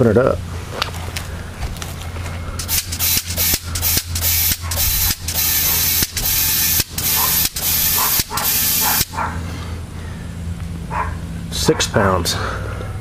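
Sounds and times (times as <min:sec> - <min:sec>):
air pump hissing strokes: 0:02.6 - 0:09.2.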